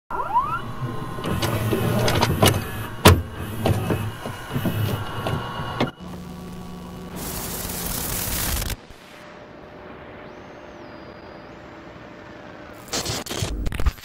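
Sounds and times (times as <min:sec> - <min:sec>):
motor whine: 0:00.1 - 0:12.9
mechanical clicks and clunks: 0:00.6 - 0:06.2
steady hum with tape hiss: 0:04.9 - 0:13.8.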